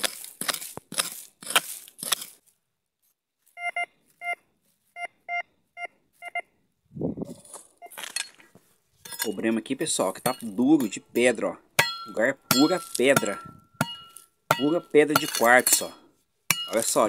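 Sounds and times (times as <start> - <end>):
hoe scraping stony soil: 0.0 - 2.6, 12.2 - 17.0
metal detector short beeps: 3.6 - 4.4.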